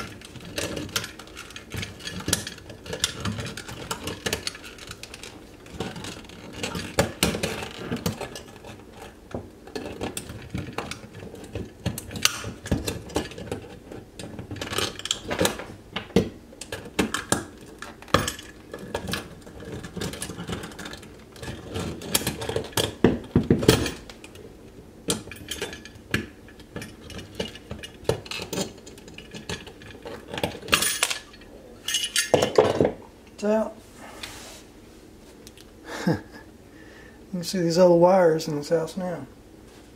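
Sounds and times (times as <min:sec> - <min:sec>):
metal box clinking and scraping: 0:00.0 - 0:15.7.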